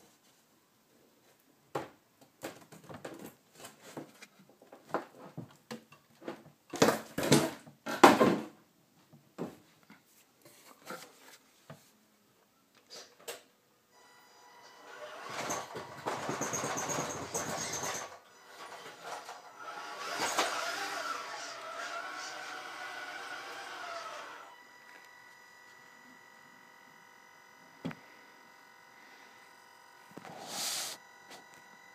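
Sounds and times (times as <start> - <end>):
knocks and clatter: 15.3 - 18.2
electric motor whine: 18.4 - 31.9.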